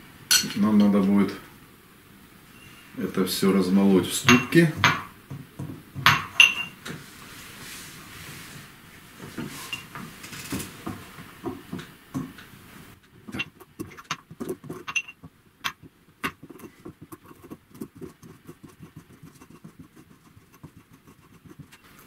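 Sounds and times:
pestle scraping bowl: 13.2 - 22.0.

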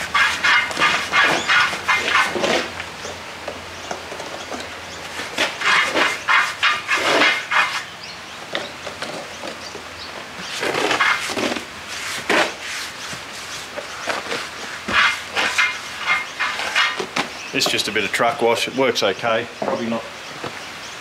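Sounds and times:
brush scrubbing tyre: 0.0 - 2.8, 5.0 - 7.9, 10.4 - 17.1.

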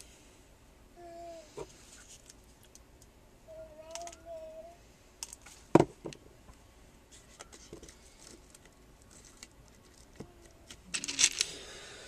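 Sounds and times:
breathy vocal sound: 11.4 - 12.0.

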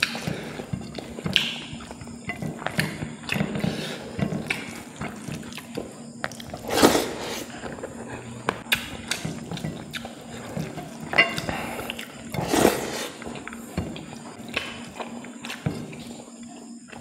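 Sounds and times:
loud slurp: 6.4 - 8.4, 11.4 - 13.4.

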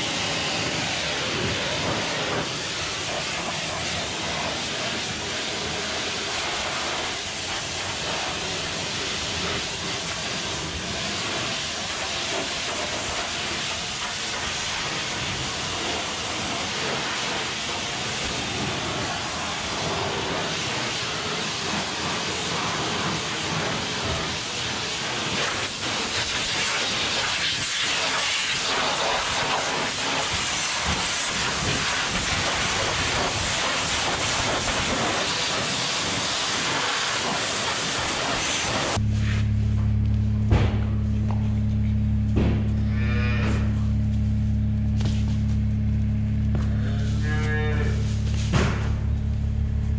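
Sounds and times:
pressure washer spray hissing: 0.0 - 39.4.

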